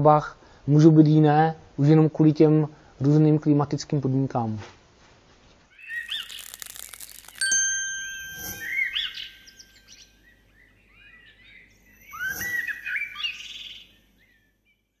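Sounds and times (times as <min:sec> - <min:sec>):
small birds chirping: 0:05.8 - 0:07.5, 0:08.4 - 0:14.9
chime ringing: 0:06.3 - 0:10.3.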